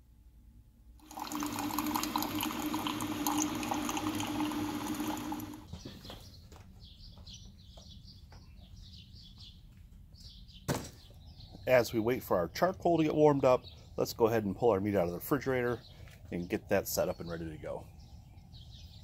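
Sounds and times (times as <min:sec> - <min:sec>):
coffee maker humming: 0:01.0 - 0:05.7
coffee pouring into mug: 0:01.0 - 0:05.7.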